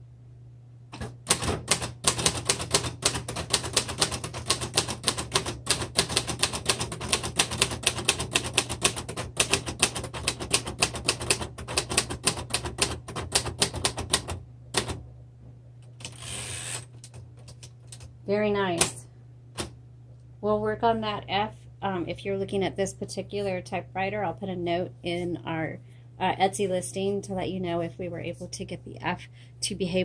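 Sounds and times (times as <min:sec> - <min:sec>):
typewriter carriage return: 0:01.0 - 0:15.0
typewriter typing: 0:01.0 - 0:15.0.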